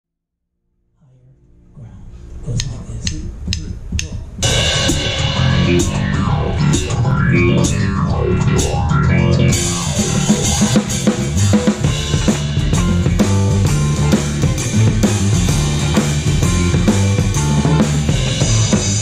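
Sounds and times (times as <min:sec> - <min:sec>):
cymbals: 0:02.2 - 0:07.8
drum kit played with sticks: 0:02.3 - 0:19.0
electric guitar: 0:04.4 - 0:19.0.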